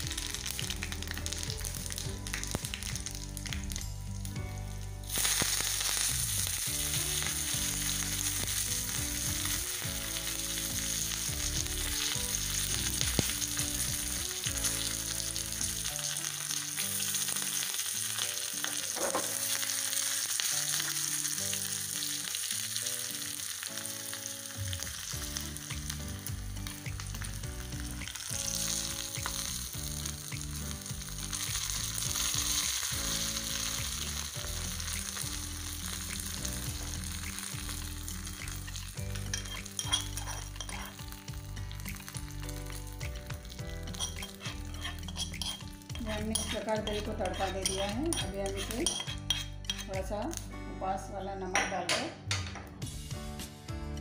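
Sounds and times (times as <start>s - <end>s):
leaves sizzling in hot oil: 0.0s - 50.5s.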